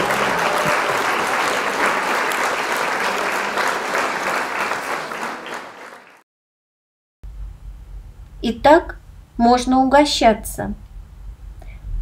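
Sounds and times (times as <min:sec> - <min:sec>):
crowd applauding: 0:00.0 - 0:06.2.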